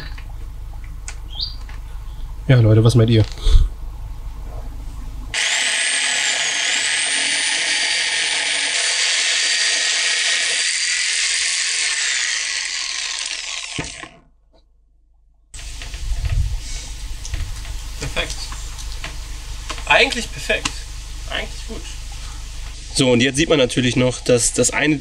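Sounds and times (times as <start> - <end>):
power saw cutting plastic: 5.3 - 14.3.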